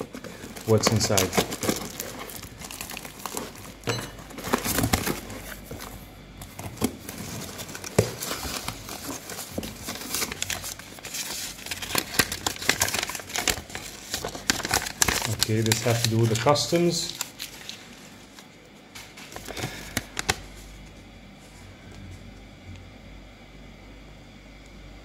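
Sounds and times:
bubble wrap and paper crinkling: 0:00.0 - 0:21.6
paper tearing: 0:06.8 - 0:18.0.

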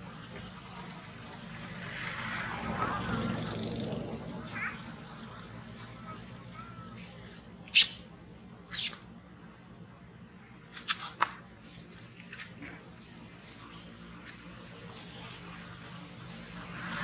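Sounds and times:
baby monkey squeaking: 0:07.7 - 0:08.0, 0:08.7 - 0:09.0.

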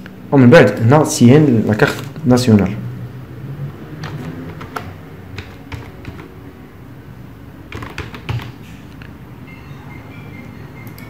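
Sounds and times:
keyboard keystrokes: 0:04.0 - 0:06.3, 0:07.7 - 0:08.6.

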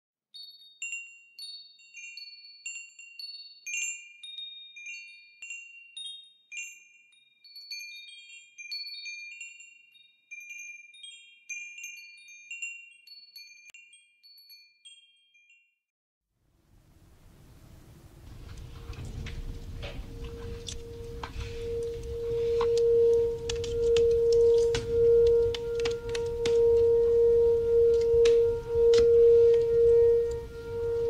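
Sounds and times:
tubular wind chime ringing: 0:18.3 - 0:31.0.

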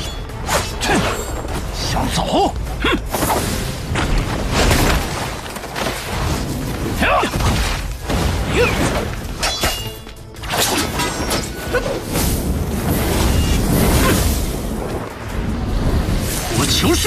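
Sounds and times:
action music: 0:00.0 - 0:17.0
crackling magic blasts: 0:10.4 - 0:17.0.

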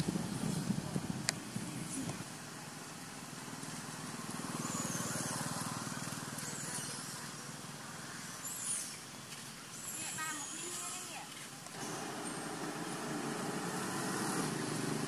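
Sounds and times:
passing vehicle engine: 0:00.0 - 0:08.9, 0:11.7 - 0:15.0
high bird chirps: 0:04.6 - 0:07.6, 0:08.2 - 0:11.2.

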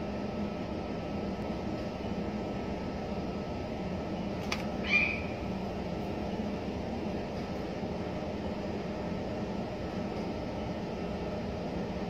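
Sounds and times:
low background hum: 0:00.0 - 0:12.0
parrot call: 0:04.8 - 0:05.4.

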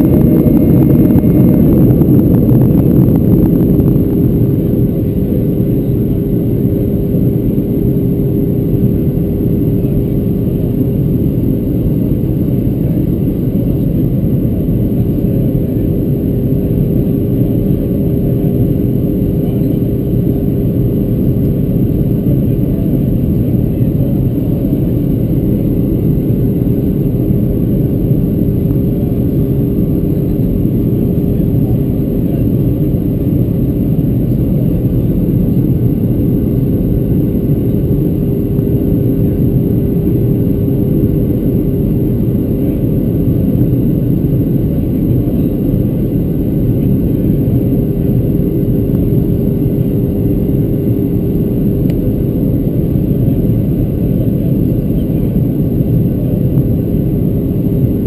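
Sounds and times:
airplane cabin noise: 0:00.0 - 0:58.0
steady engine hum: 0:00.0 - 0:58.0.

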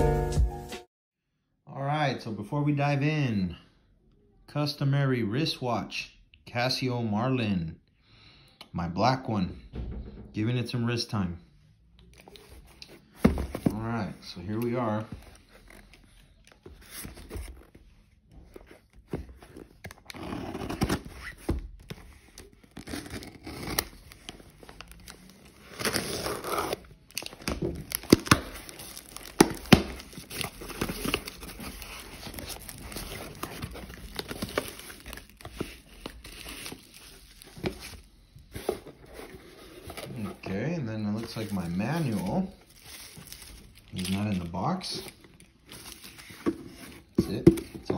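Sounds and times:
cardboard scraping and rustling: 0:12.2 - 0:26.8, 0:27.4 - 0:44.3, 0:45.0 - 0:47.9
bubble wrap crinkling: 0:22.3 - 0:40.4, 0:41.0 - 0:47.1
packing tape tearing: 0:22.4 - 0:37.8.

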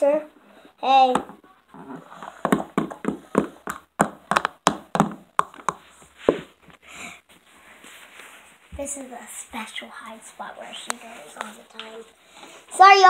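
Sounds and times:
plastic toy tapping on floor: 0:02.4 - 0:05.8.

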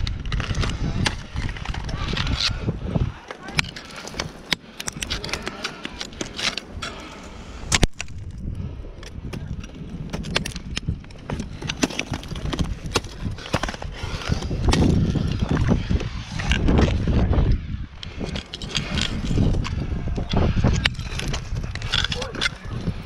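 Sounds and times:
low rumble of movement: 0:00.0 - 0:23.0
ice axes striking ice: 0:09.2 - 0:15.6.

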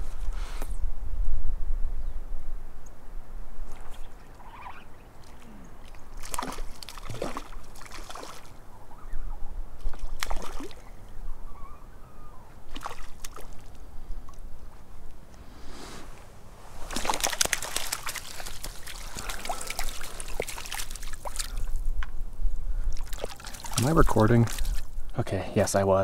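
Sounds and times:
fish splashing at water surface: 0:06.2 - 0:08.5, 0:09.9 - 0:10.8, 0:12.7 - 0:13.7, 0:16.8 - 0:21.8, 0:23.0 - 0:24.9.

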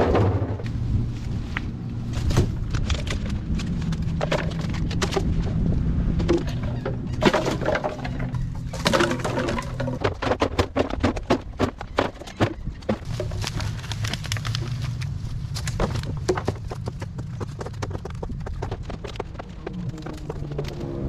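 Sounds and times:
footsteps on dry sticks and leaves: 0:00.6 - 0:05.7, 0:11.9 - 0:21.0
plastic bottles clattering into barrel: 0:06.2 - 0:13.5.

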